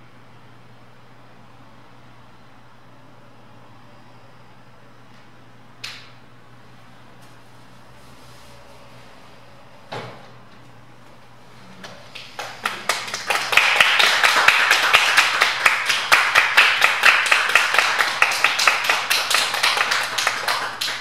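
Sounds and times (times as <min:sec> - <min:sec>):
audience clapping: 0:11.8 - 0:21.0.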